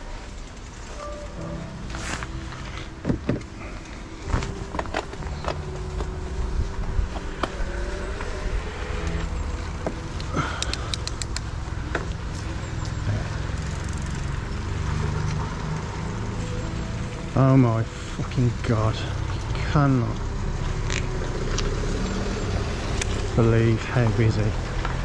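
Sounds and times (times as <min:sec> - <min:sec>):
car engines at low speed: 0:00.0 - 0:25.0
quick run of ticks: 0:10.2 - 0:11.6.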